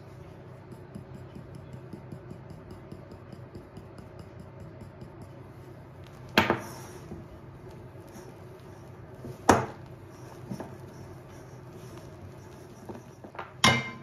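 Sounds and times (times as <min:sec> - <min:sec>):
kitchenware clink: 0:12.9 - 0:14.0.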